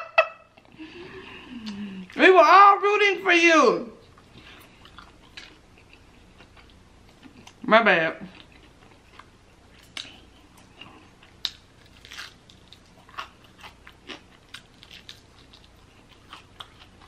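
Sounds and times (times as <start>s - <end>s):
biting and chewing: 8.3s - 17.0s.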